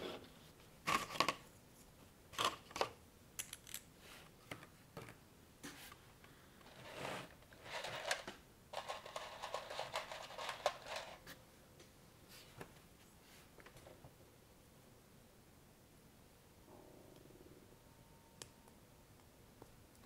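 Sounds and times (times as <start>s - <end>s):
small plastic parts clattering: 7.6s - 11.2s.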